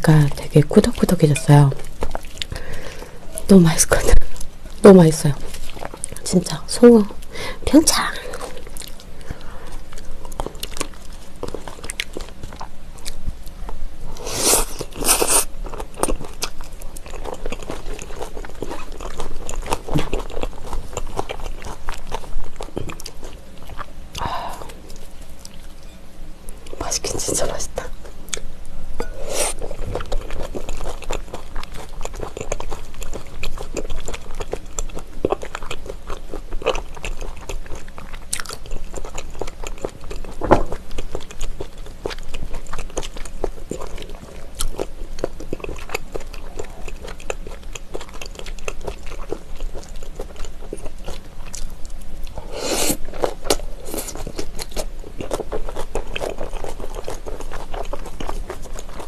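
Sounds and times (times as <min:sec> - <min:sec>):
wet chewing mouth sounds: 0:07.2 - 0:25.8, 0:26.6 - 0:59.0
raw vegetables crunching: 0:14.4 - 0:25.8, 0:28.3 - 0:59.0.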